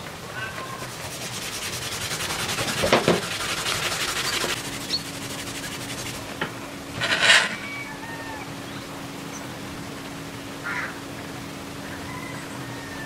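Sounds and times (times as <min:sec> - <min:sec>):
paper wrapping tearing: 0:01.2 - 0:04.6.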